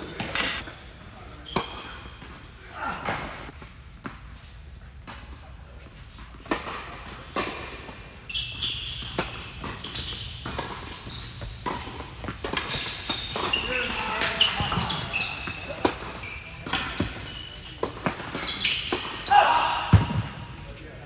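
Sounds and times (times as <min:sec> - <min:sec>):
tennis balls struck and bouncing: 0:00.0 - 0:00.6, 0:08.9 - 0:19.2
sneakers squeaking on court: 0:00.0 - 0:04.2, 0:06.5 - 0:20.8.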